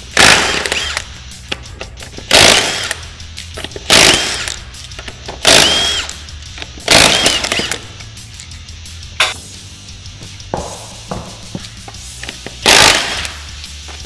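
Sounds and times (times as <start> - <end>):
impact wrench bursts: 0.0 - 1.2, 2.2 - 4.6, 5.3 - 8.0, 12.2 - 13.5.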